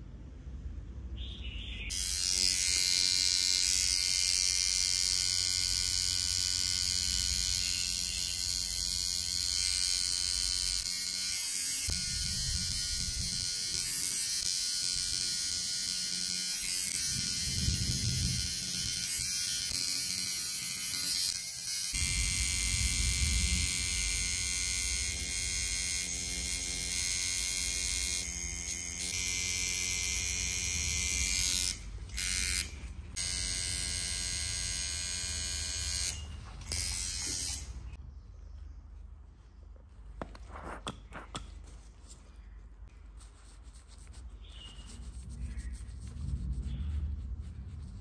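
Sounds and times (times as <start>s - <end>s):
tattoo machine buzzing: 1.9s - 38.0s
gloved hand rubbing skin: 39.9s - 48.0s.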